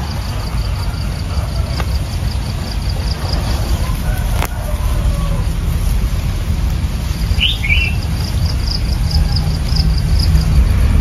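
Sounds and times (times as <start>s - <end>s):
insect trilling: 0.0s - 11.0s
steady low rumble: 0.0s - 11.0s
bird chirping: 7.3s - 10.6s.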